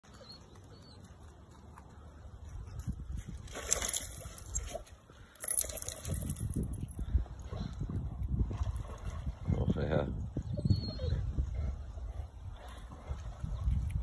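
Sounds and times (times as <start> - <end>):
dog splashing in shallow water: 3.3 - 6.6.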